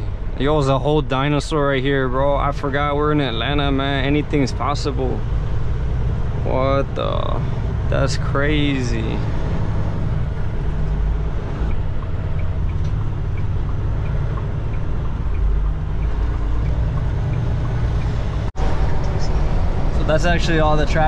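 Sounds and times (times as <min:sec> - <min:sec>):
truck engine and road drone: 0:00.0 - 0:21.0
faint ticking: 0:10.2 - 0:18.5.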